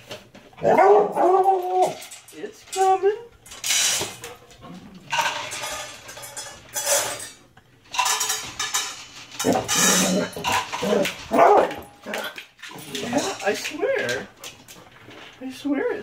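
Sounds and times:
dishes and containers clattering: 0.0 - 15.4.

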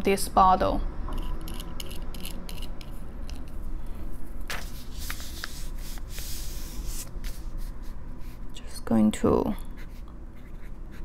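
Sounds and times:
paper rubbing: 4.5 - 8.4.

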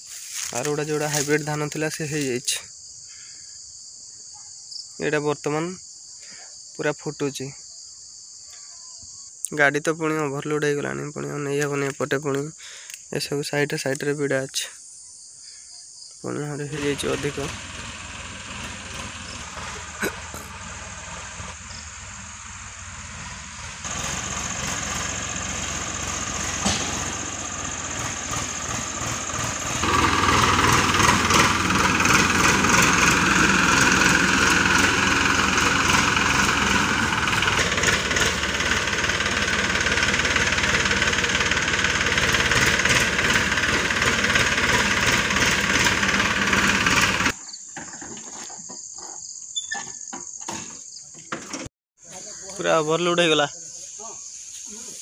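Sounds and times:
tractor engine under load: 0.0 - 2.6, 16.6 - 48.6, 50.5 - 51.7.

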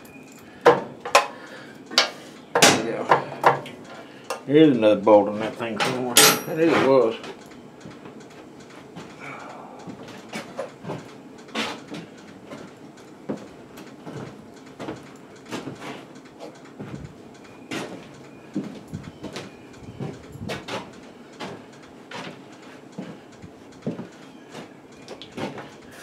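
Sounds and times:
tools and metal parts knocking: 0.6 - 3.7.

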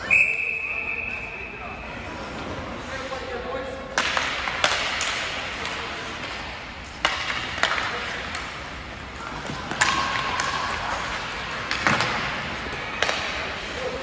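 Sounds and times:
ice rink noise: 0.0 - 14.0
hockey sticks clacking on puck: 2.9 - 14.0.

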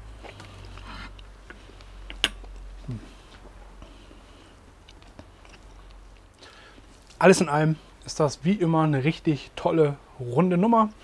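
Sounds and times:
steady low hum: 0.0 - 11.0
person humming mm: 2.8 - 3.2.

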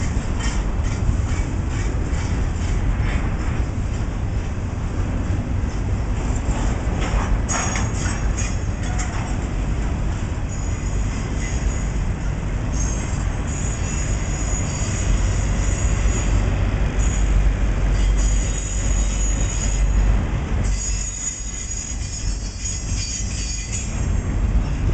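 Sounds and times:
train wheels rumbling on rail: 0.0 - 24.9
high-pitched wheel squeal: 12.7 - 16.4, 17.0 - 20.0, 20.7 - 24.0.

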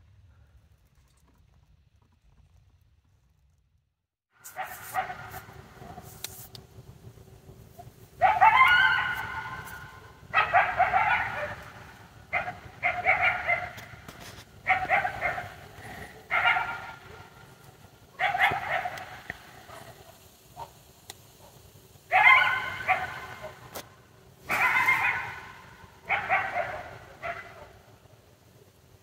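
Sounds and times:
coyotes yipping and howling: 7.8 - 28.2.

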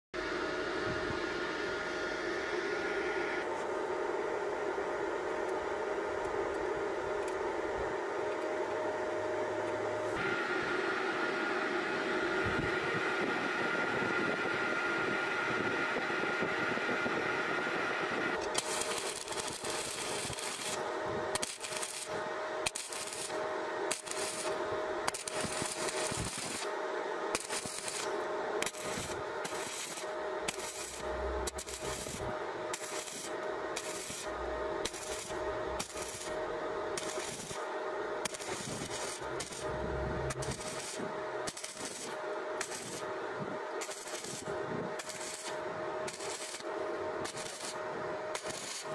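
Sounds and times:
steady hum: 0.2 - 48.9
welding arc crackling: 18.4 - 48.9.

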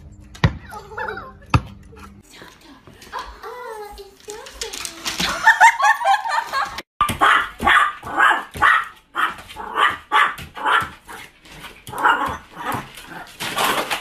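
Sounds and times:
small dog barking: 7.2 - 11.2.

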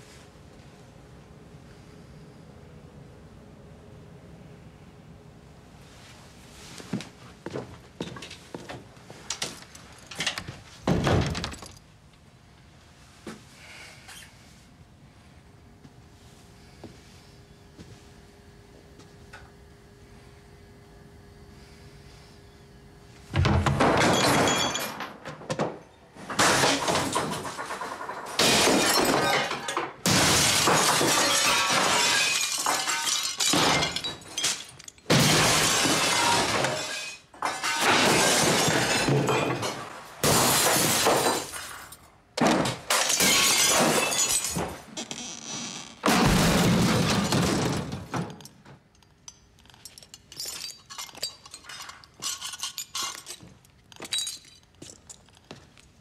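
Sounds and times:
furniture knocked over: 10.8 - 11.8, 23.3 - 41.6, 46.0 - 48.4
glass shattering: 23.5 - 42.0, 42.7 - 44.9, 49.3 - 55.2.

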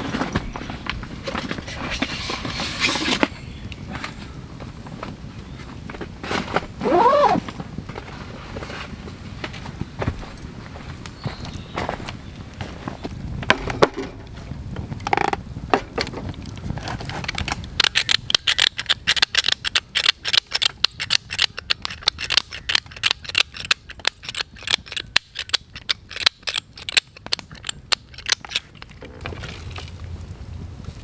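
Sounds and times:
pepper mill grinding clicks: 17.8 - 28.8.

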